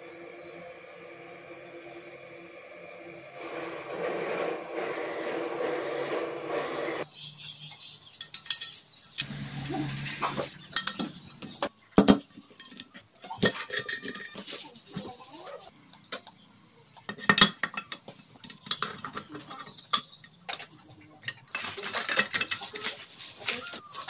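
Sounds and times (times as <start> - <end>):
metal parts clinking: 8.2 - 9.3, 10.4 - 14.6, 17.1 - 20.5, 21.3 - 23.0.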